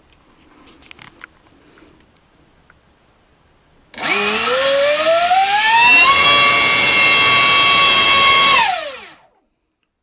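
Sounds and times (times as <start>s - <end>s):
electric motor whine: 4.0s - 9.4s.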